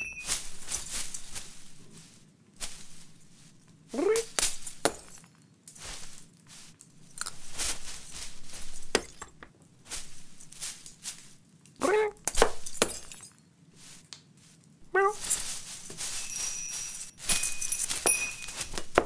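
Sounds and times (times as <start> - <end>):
glass baubles smashing: 0.0 - 0.8, 4.4 - 5.4, 12.4 - 13.4, 16.0 - 19.0
rustling branches: 0.0 - 12.9, 13.7 - 19.0
cat meowing: 11.8 - 12.2, 14.9 - 15.3.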